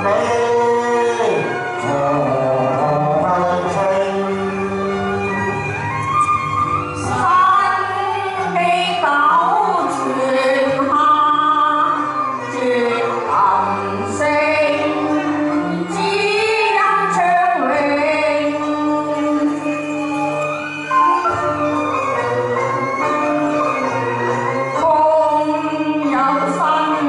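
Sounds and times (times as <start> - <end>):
instrumental accompaniment: 0.0 - 27.0
woman singing opera: 7.0 - 21.3, 24.7 - 27.0.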